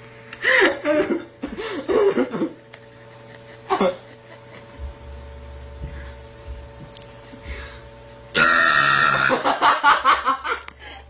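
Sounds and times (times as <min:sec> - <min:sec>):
person making throaty sound: 0:08.4 - 0:09.4.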